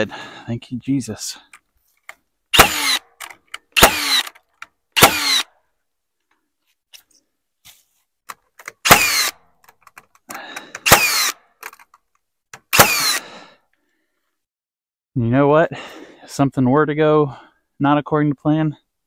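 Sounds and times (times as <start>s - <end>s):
nail gun firing: 2.6s - 4.4s, 5.0s - 5.4s, 8.6s - 9.3s, 10.8s - 11.4s, 12.6s - 13.2s.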